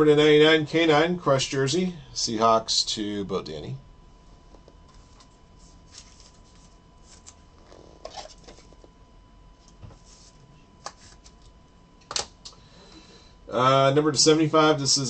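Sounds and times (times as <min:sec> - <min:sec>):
plastic rustling and scraping: 0:04.9 - 0:08.9.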